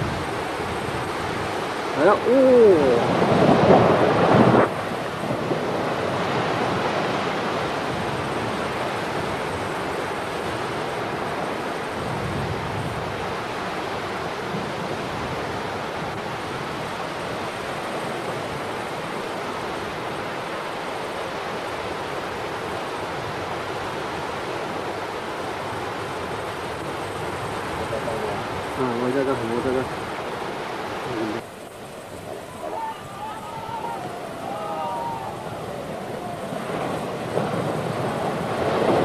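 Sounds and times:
landslide earth and rock rushing: 0:26.8 - 0:39.0.

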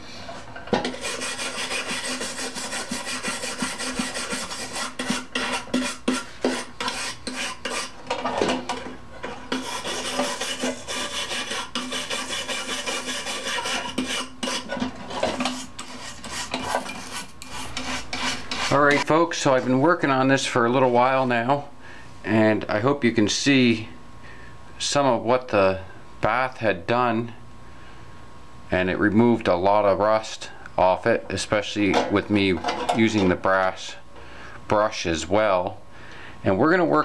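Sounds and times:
wire brush scrubbing metal: 0:00.8 - 0:08.0, 0:09.5 - 0:19.2.

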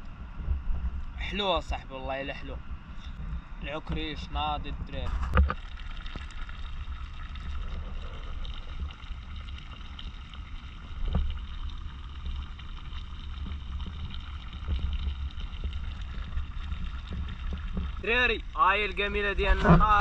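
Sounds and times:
wind buffeting microphone: 0:00.0 - 0:11.6.

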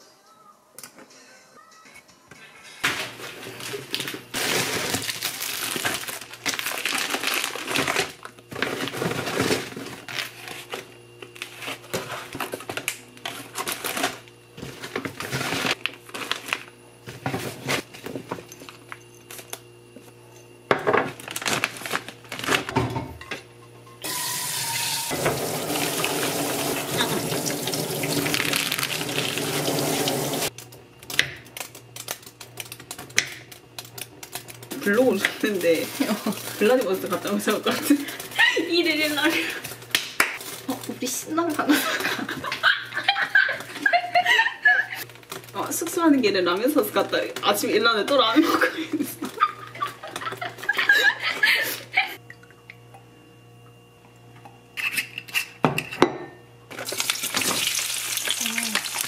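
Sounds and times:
plastic packaging rustling: 0:02.9 - 0:19.4, 0:21.1 - 0:22.8, 0:28.0 - 0:29.4, 0:31.5 - 0:41.8
tap running: 0:24.0 - 0:30.6.

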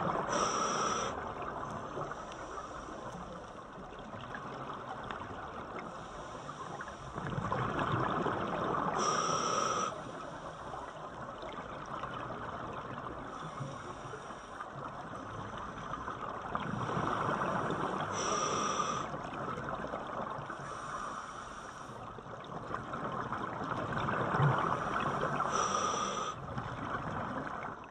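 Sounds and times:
diver breathing through regulator: 0:00.2 - 0:01.3, 0:08.9 - 0:10.8, 0:17.8 - 0:19.2, 0:20.6 - 0:22.0, 0:24.8 - 0:26.4
bubbling water: 0:07.2 - 0:09.1.

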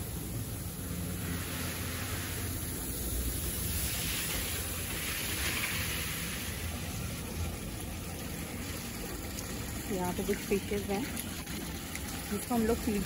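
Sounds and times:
water spraying and splashing: 0:00.0 - 0:13.0.

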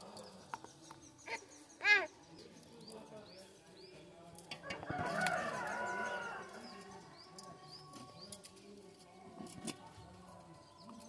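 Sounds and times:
birds chirping: 0:00.0 - 0:11.0
clicks and knocks on metal bowl: 0:04.4 - 0:05.4.

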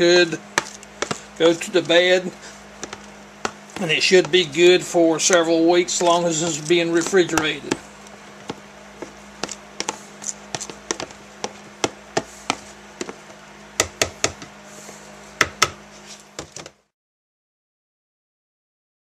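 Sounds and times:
wooden stick knocking plastic bowl: 0:00.6 - 0:01.9, 0:02.8 - 0:04.6, 0:05.2 - 0:07.8, 0:09.4 - 0:13.2.

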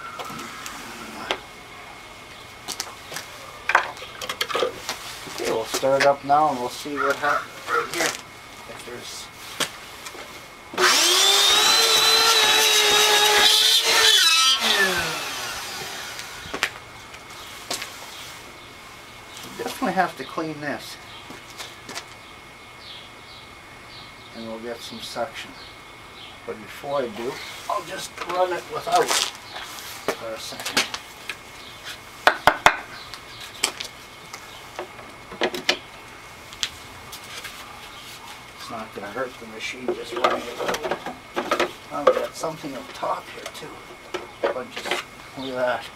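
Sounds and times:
vacuum cleaner motor whining: 0:10.8 - 0:16.7.

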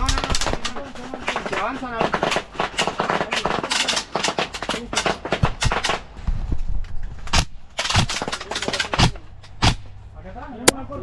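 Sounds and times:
airsoft guns firing: 0:00.0 - 0:06.1, 0:07.3 - 0:09.8.

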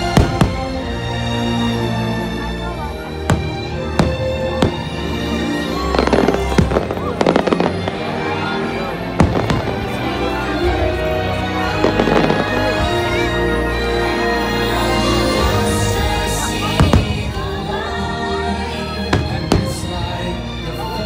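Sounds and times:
fireworks crackling: 0:03.2 - 0:10.6, 0:11.7 - 0:13.2
fireworks bangs: 0:05.9 - 0:08.0, 0:09.2 - 0:10.0.

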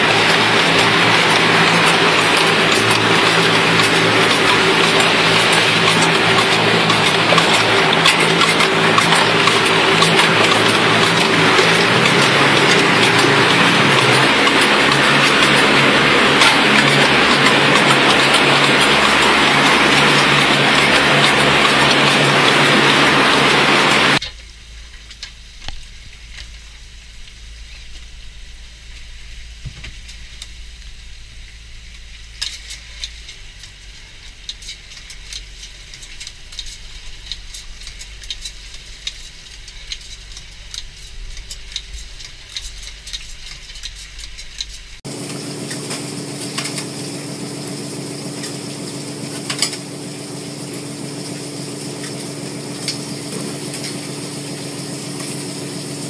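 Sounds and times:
fast crackling clicks: 0:00.0 - 0:28.2, 0:30.0 - 0:45.0
machine hum with low tone: 0:00.0 - 0:56.0.

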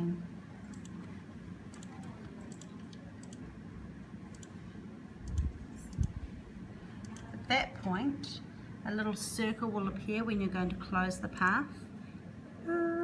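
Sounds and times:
computer mouse clicking: 0:00.6 - 0:01.1, 0:01.7 - 0:03.4, 0:04.3 - 0:04.6, 0:05.2 - 0:06.2.

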